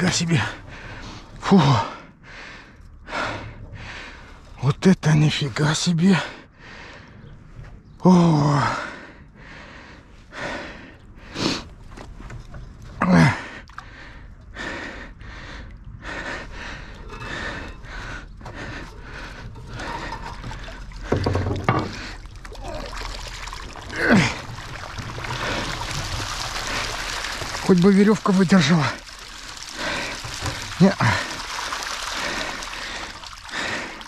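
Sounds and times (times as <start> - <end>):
man breathing hard and grunting: 13.0 - 22.8, 23.8 - 24.6, 28.9 - 34.0
water pouring and dripping: 15.7 - 34.0.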